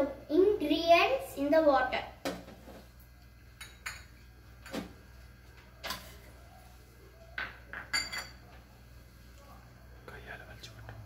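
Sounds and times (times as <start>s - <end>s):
glass bowls clinking: 3.6s - 4.8s, 7.4s - 8.6s.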